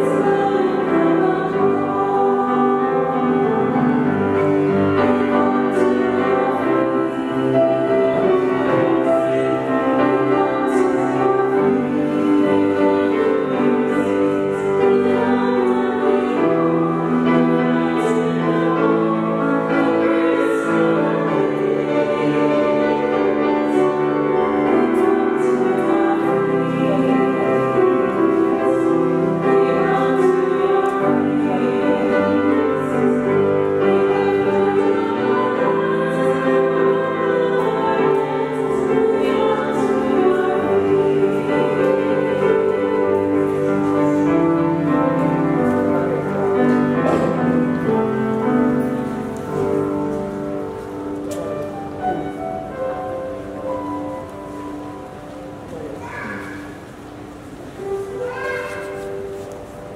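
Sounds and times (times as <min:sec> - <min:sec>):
people singing a hymn: 0:00.0 - 0:58.2
piano accompaniment: 0:00.0 - 0:59.9.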